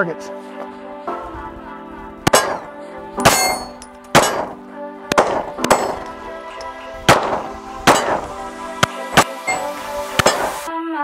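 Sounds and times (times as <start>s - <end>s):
background music: 0.0s - 11.0s
steel targets ringing: 2.3s - 4.6s, 5.2s - 6.1s, 7.1s - 8.4s, 9.2s - 10.6s
pistol shots: 2.3s - 6.1s, 7.1s - 9.4s.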